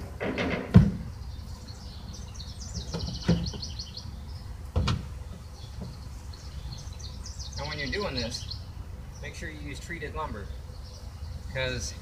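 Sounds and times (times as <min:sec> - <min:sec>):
wooden board knocks: 0:00.2 - 0:01.0
bird chirping: 0:00.9 - 0:12.0.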